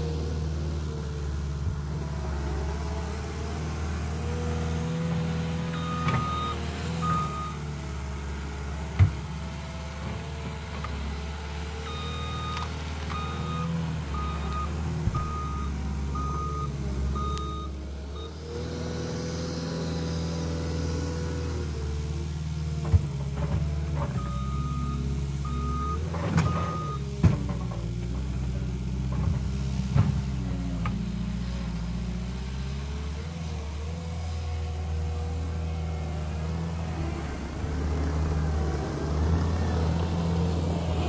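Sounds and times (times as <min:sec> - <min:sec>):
diesel engine working: 0:00.0 - 0:41.0
backup alarm beeping: 0:11.9 - 0:17.7.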